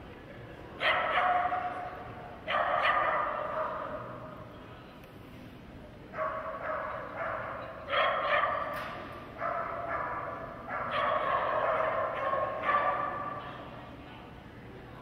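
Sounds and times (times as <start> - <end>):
dog barking: 0.8 - 1.9, 2.5 - 4.1, 6.1 - 8.8, 9.4 - 13.4.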